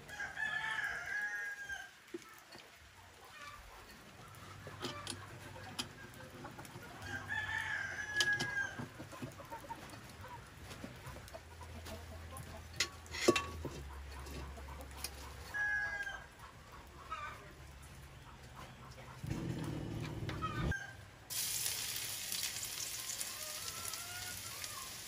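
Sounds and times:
rooster crowing: 0.0 - 1.9, 7.0 - 8.9, 19.3 - 21.1, 23.2 - 25.0
metal pots clanking on stone: 12.6 - 14.6.

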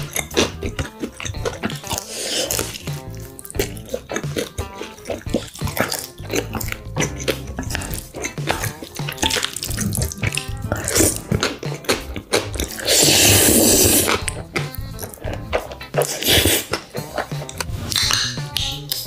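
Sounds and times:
background music: 0.0 - 19.0
wet chewing and smacking: 0.0 - 19.0
loud slurp of noodles: 1.9 - 2.8, 12.7 - 14.3, 16.0 - 16.7.

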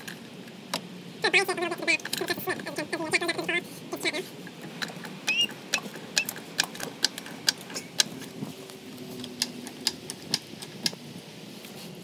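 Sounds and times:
faint background hum: 0.0 - 12.0
sharp mechanical clicks: 4.8 - 8.3.

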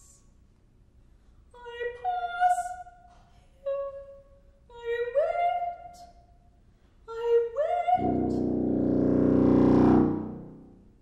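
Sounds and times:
soprano singing: 1.6 - 6.1, 7.1 - 8.7.

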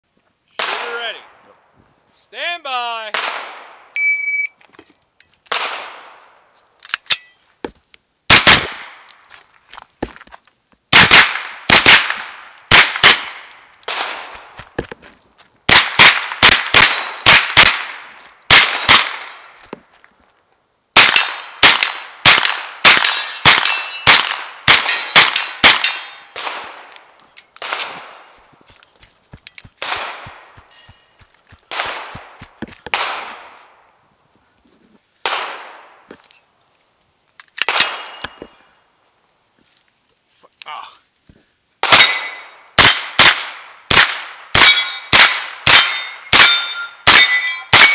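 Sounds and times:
gunshots: 0.6 - 1.3, 3.1 - 3.8, 5.5 - 6.2, 8.3 - 9.0, 10.9 - 14.4, 15.7 - 19.3, 21.0 - 27.0, 27.6 - 28.3, 29.8 - 30.6, 31.7 - 33.6, 35.2 - 35.8, 41.8 - 47.9
steel targets ringing: 21.2 - 24.2, 24.8 - 26.4, 29.8 - 31.2, 41.8 - 43.1, 44.6 - 47.9.

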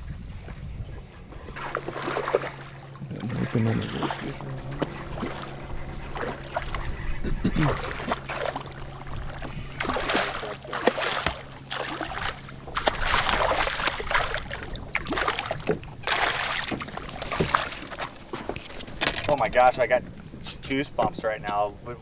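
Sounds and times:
fish thrashing and splashing: 1.6 - 18.9.

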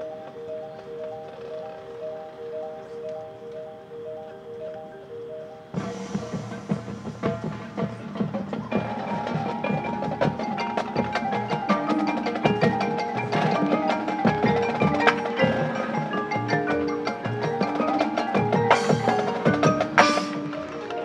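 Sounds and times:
marching band playing: 5.7 - 21.0
quick percussion strikes: 5.7 - 21.0.

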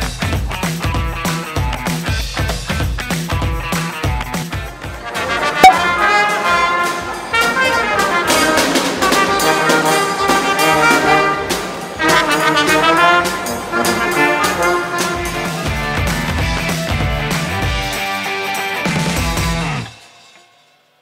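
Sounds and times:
drum beating: 0.0 - 20.0
brass band playing: 4.5 - 19.8.

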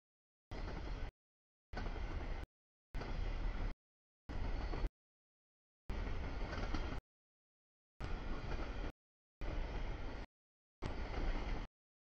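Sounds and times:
train wheels rumbling on rail: 0.5 - 1.1, 1.8 - 4.9, 5.9 - 7.0, 8.0 - 11.7.

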